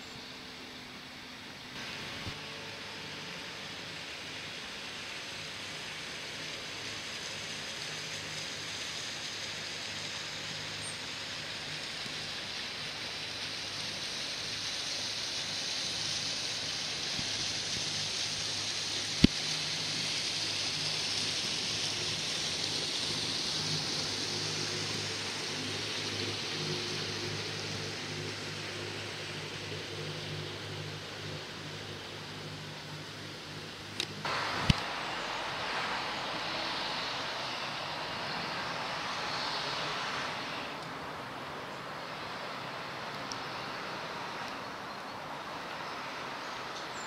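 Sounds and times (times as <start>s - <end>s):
outdoor background hiss: 0.0s - 47.0s
passing vehicle rushing: 34.2s - 44.4s.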